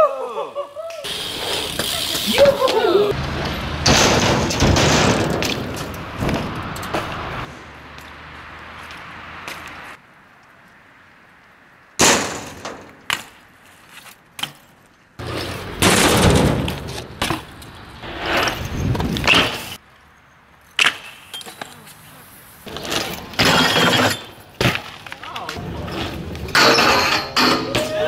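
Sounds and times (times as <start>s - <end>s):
tyres rolling over rough pavement: 1.1s - 19.8s, 21.4s - 28.0s
bike landing impact: 3.4s - 7.2s, 12.0s - 13.4s, 14.4s - 17.8s.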